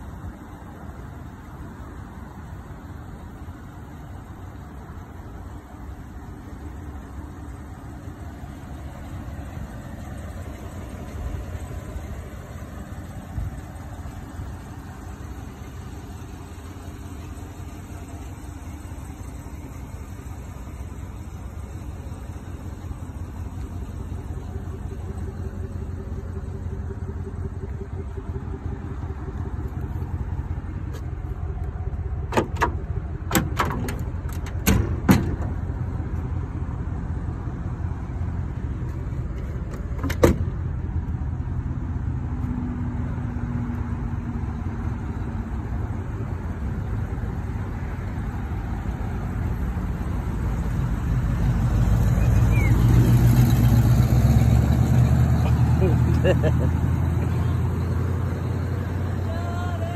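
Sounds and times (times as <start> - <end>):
tailgate clicks and clunks: 30.9 - 35.8, 39.3 - 40.8.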